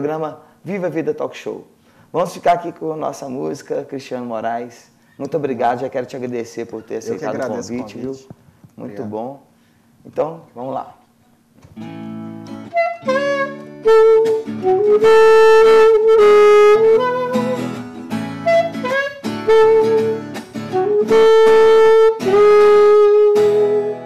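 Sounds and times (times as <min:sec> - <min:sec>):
saxophone slow melody: 0:12.5 - 0:24.0
strummed acoustic guitar: 0:16.8 - 0:21.1.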